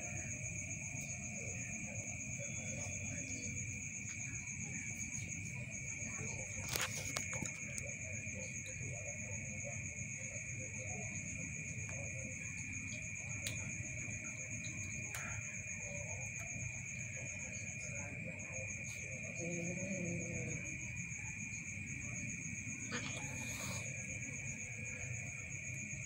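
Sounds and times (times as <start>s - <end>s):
night insects chirring: 0.0s - 26.0s.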